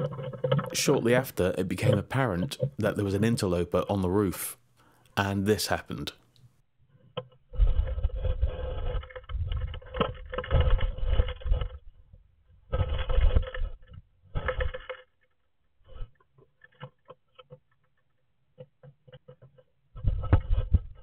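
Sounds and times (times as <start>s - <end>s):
cat paw scraping in wooden box: 12.7s - 15.0s.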